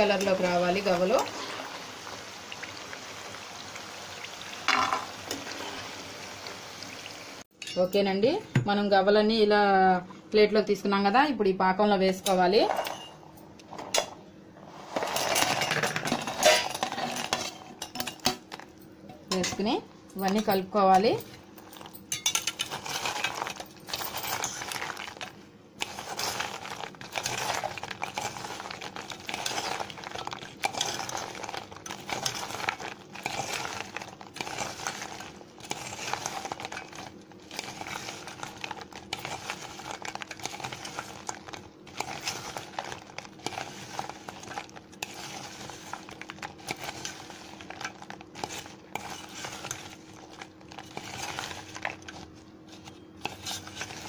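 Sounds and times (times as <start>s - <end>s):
spoon scraping metal pot: 52.8s - 54.0s.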